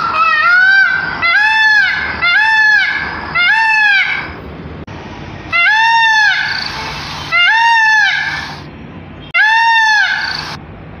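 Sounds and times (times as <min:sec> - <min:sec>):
peafowl calling: 0:00.0 - 0:04.4, 0:05.5 - 0:08.7, 0:09.4 - 0:10.6.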